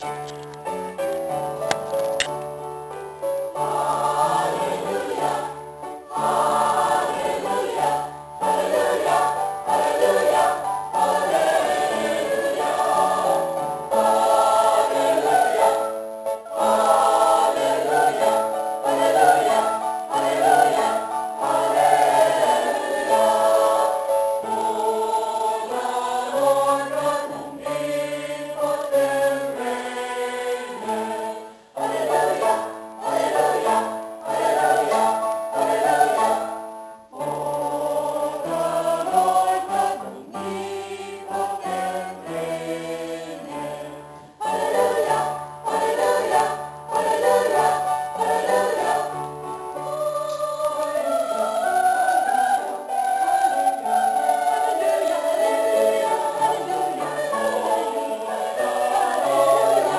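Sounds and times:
choir singing: 0.0s - 59.9s
alto voice singing: 3.5s - 59.9s.

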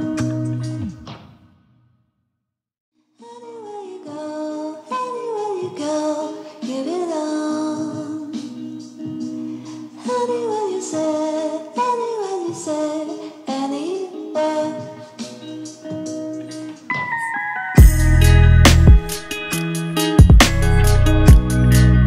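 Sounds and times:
background music with held chords: 15.2s - 22.0s.

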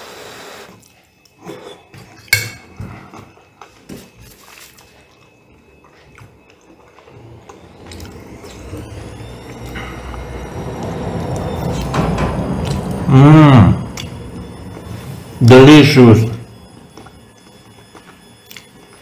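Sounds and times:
chewing: 2.9s - 8.6s, 17.0s - 19.0s
rising whine: 5.3s - 19.0s
low rumble: 7.2s - 17.4s.

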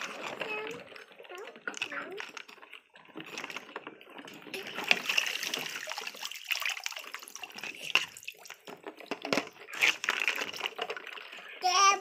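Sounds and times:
plastic toy clicking and knocking: 0.0s - 5.8s, 7.5s - 12.0s
water dripping and splashing: 4.5s - 11.4s.

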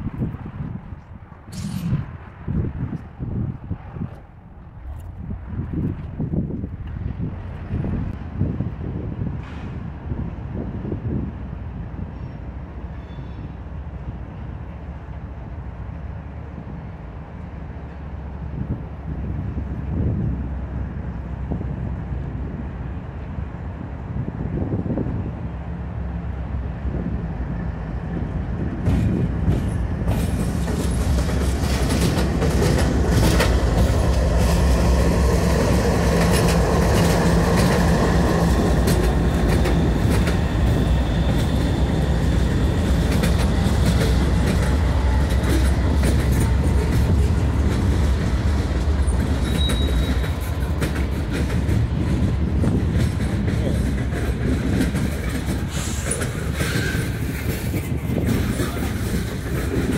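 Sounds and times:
diesel locomotives rumbling: 0.0s - 59.9s
train wheels clacking on rail joints: 28.0s - 59.9s
thin wheel squeal: 49.4s - 50.3s.

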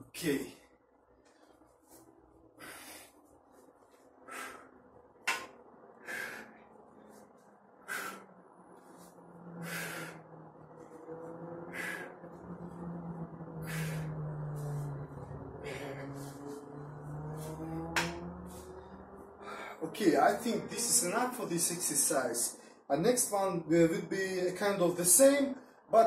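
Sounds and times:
man exhaling forcefully: 9.6s - 10.2s, 13.6s - 14.2s.

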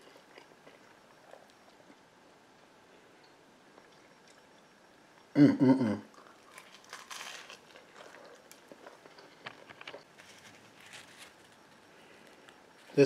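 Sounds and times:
soft chewing crunches: 0.0s - 2.1s, 6.1s - 13.0s.

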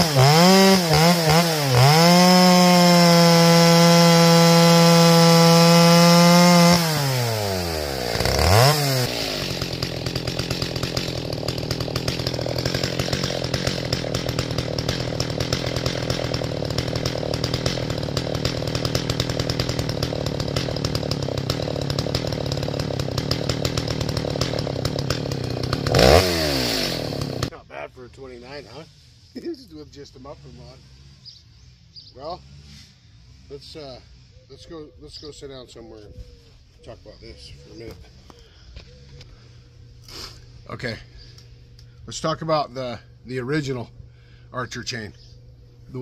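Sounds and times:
chainsaw cutting a log: 0.0s - 27.5s
chainsaw idling: 0.0s - 27.6s.

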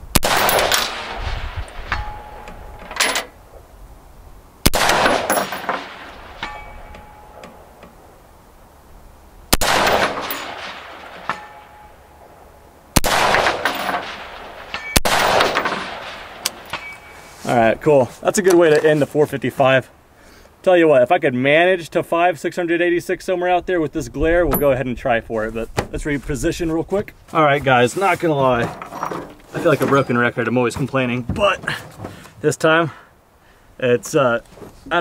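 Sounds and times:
rifle shots with echo: 0.1s - 2.4s, 4.6s - 6.7s, 9.5s - 12.3s, 13.0s - 17.0s
bullet striking steel target: 0.2s - 2.7s, 4.7s - 7.7s, 9.5s - 12.0s, 13.0s - 17.1s.

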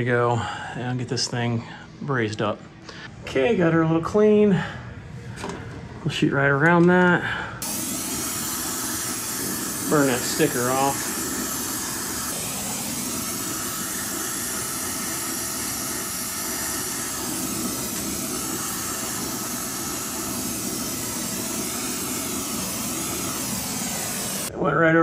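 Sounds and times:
torch flame hissing: 7.6s - 24.5s.

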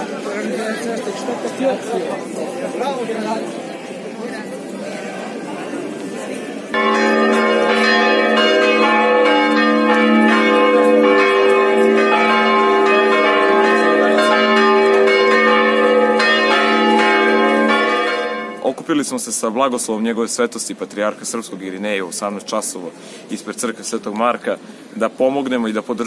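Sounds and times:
church bells pealing: 6.7s - 18.8s.

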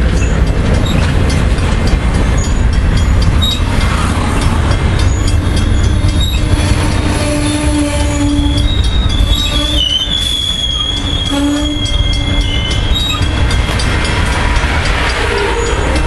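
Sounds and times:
train rumbling past: 0.0s - 16.0s
wheels clicking over rails: 0.0s - 16.0s
high brake squeal: 8.1s - 13.8s.

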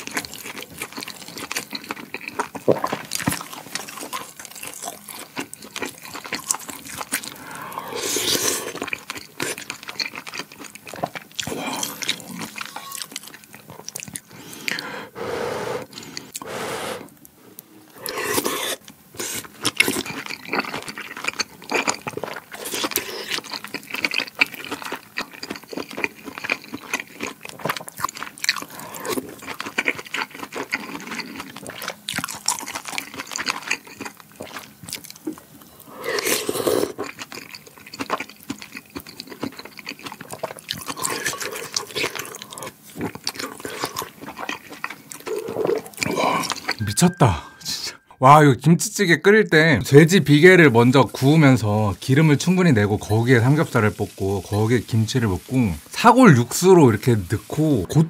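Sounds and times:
wet chewing: 0.0s - 15.2s, 17.9s - 46.8s
slurping broth: 7.2s - 9.7s, 14.2s - 17.2s, 17.9s - 20.0s, 35.8s - 37.2s, 45.2s - 46.8s.

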